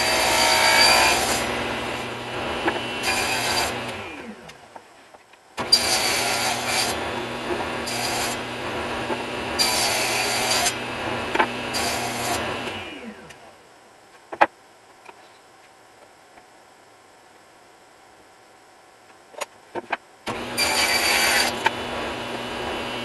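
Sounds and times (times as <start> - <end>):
table saw cutting wood: 0.0 - 4.4, 5.6 - 13.2, 20.3 - 23.0.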